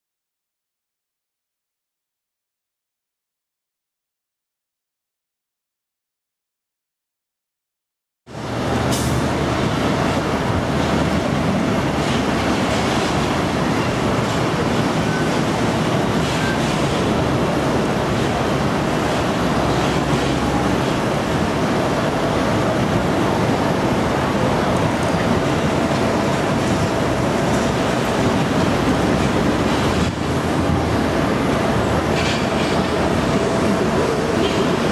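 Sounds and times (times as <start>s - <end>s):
jet and machinery roar: 8.3s - 34.9s.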